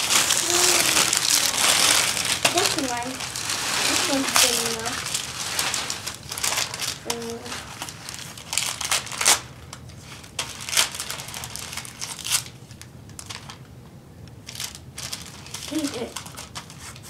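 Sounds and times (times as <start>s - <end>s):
wrapping paper tearing and crumpling: 0.0s - 13.6s, 14.4s - 17.0s.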